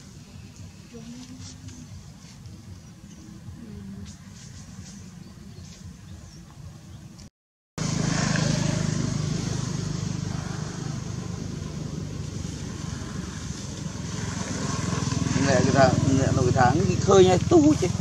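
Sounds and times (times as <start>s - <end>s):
small engine running: 7.8s - 18.0s.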